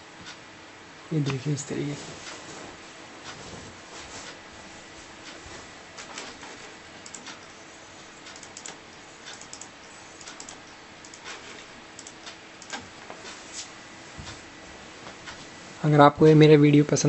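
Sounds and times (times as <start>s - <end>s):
faint steady hum: 0.0s - 17.0s
keyboard and mouse clicks: 7.0s - 7.5s, 8.2s - 12.9s.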